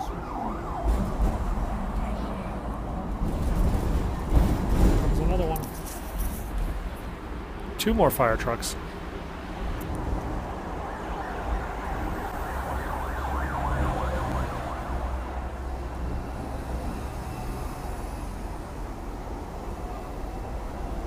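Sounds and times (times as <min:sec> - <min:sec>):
fire engine siren: 0:00.0 - 0:03.4, 0:10.2 - 0:18.4
low rumble of tram and traffic: 0:00.0 - 0:21.0.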